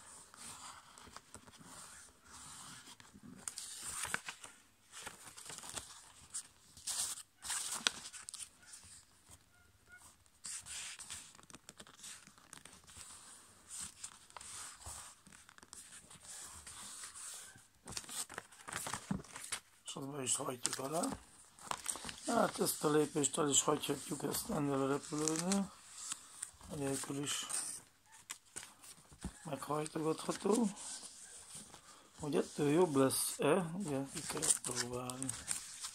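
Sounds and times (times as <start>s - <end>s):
paper rustling and crackling: 0.1s - 9.4s, 10.0s - 35.9s
fingers rubbing paper folds: 10.0s - 19.6s, 20.6s - 35.9s.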